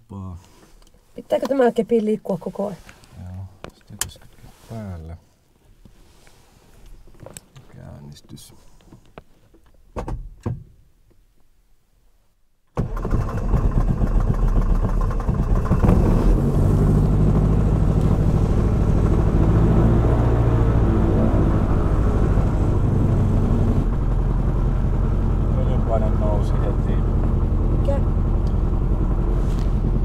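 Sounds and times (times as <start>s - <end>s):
aircraft engine starting and idling: 12.8s - 30.0s.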